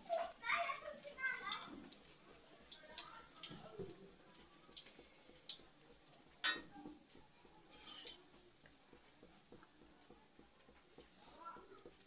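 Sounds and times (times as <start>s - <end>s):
metal spoon clinking on cookware: 6.4s - 6.8s, 7.7s - 8.2s.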